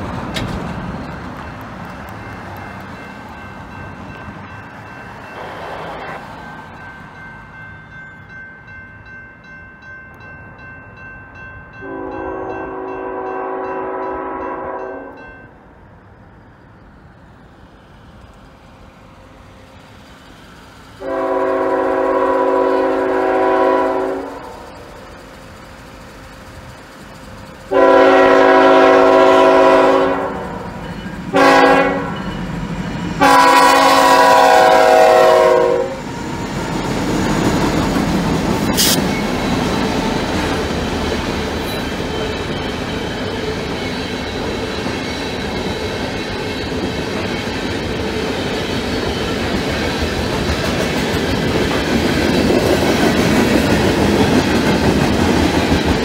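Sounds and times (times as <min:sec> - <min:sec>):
train wheel clatter: 0:00.0 - 0:05.2, 0:30.6 - 0:56.0
locomotive air horn: 0:05.4 - 0:06.2, 0:11.8 - 0:15.2, 0:21.0 - 0:24.8, 0:27.7 - 0:30.7, 0:31.3 - 0:32.2, 0:33.2 - 0:36.0, 0:38.7 - 0:39.1.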